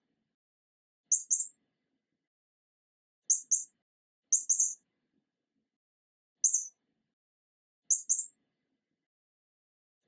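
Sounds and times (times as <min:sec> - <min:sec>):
high-pitched bird-like chirps: 0:01.1 - 0:01.6, 0:03.3 - 0:04.8, 0:06.4 - 0:06.7, 0:07.9 - 0:08.4.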